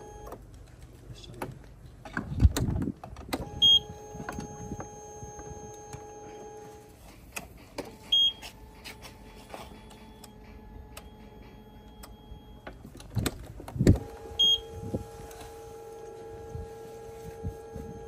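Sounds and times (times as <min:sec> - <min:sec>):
steady electric whine: 0:07.9 - 0:18.0
short high beep: 0:14.4 - 0:14.8.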